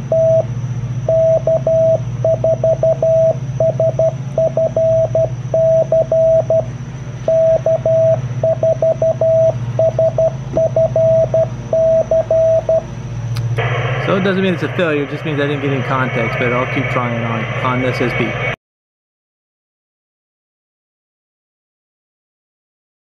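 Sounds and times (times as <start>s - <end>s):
low steady hum: 0.0s - 18.6s
morse code beeping: 0.1s - 0.5s, 1.1s - 6.7s, 7.3s - 12.8s.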